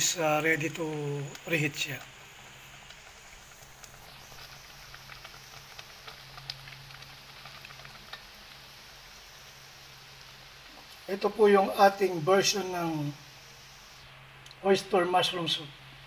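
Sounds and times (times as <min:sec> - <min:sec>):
soup bubbles crackling and popping: 0:00.0 - 0:14.7.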